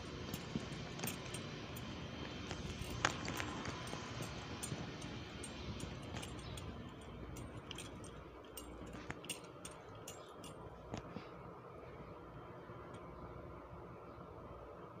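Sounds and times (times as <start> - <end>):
footsteps and handling clicks: 0.0 - 11.2.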